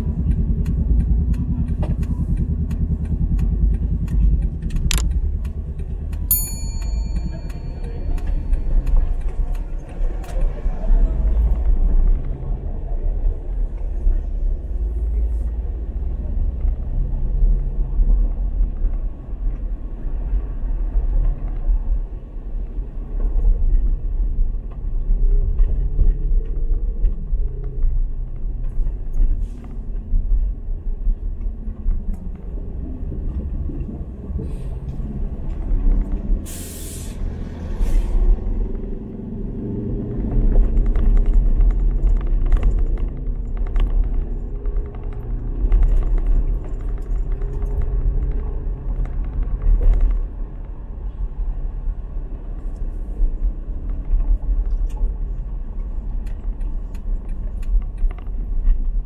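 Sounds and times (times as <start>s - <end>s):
car engine and road noise: 0.0s - 59.0s
short sharp hisses: 36.5s - 37.2s.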